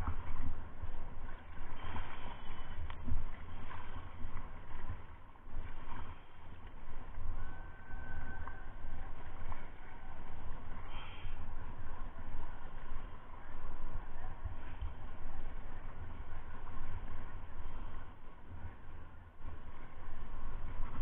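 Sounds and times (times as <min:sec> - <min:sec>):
paddle splashing in water: 0:00.0 - 0:07.3
wind buffeting microphone: 0:00.0 - 0:21.0.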